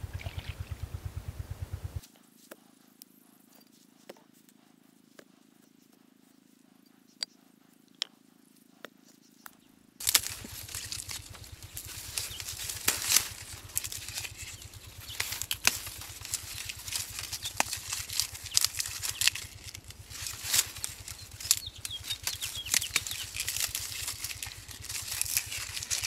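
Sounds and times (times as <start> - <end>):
dry leaves rustling and crackling: 10.0 - 26.0
sharp snaps of reeds: 10.0 - 26.0.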